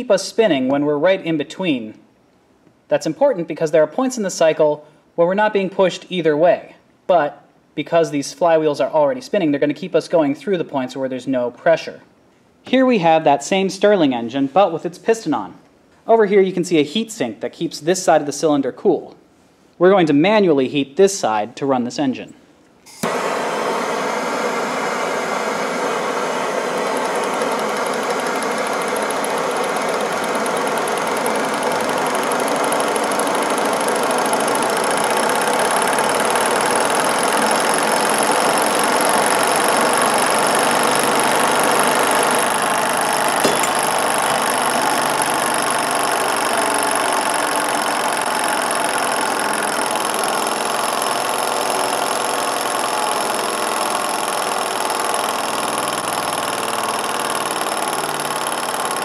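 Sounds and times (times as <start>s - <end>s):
gas torch hissing: 22.9s - 32.6s
small engine whirring and clattering: 24.9s - 59.0s.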